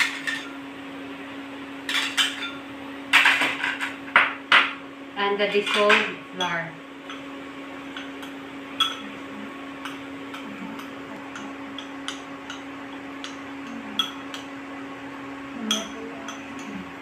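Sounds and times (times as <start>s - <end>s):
spoon clinking ceramic bowl: 7.9s - 9.1s, 9.8s - 14.5s, 15.7s - 16.7s.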